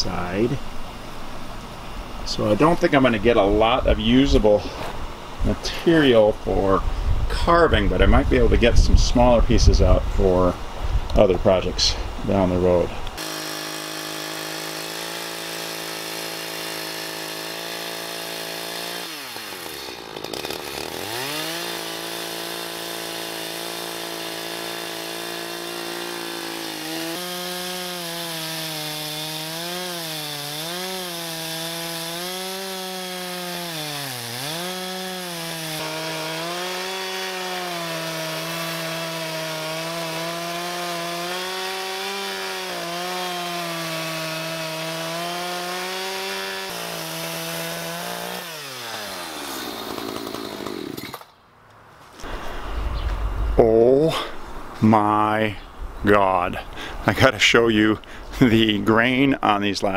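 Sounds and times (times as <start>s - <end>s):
chainsaw sawing wood: 11.6s - 51.4s.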